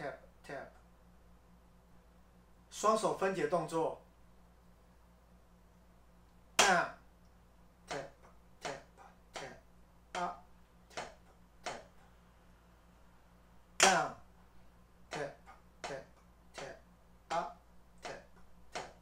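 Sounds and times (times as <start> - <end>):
drumsticks striking practice pad: 13.8 - 14.2.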